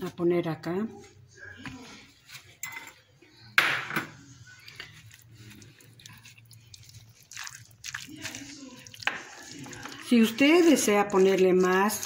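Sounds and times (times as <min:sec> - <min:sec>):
spatula scraping glass bowl: 0:04.7 - 0:12.0.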